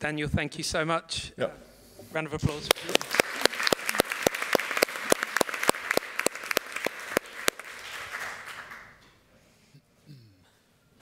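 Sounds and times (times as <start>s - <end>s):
crowd applauding: 2.5s - 9.0s.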